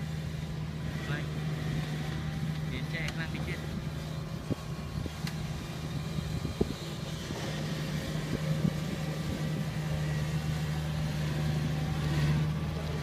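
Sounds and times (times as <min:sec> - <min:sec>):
combine harvester engine humming: 0:00.0 - 0:13.0.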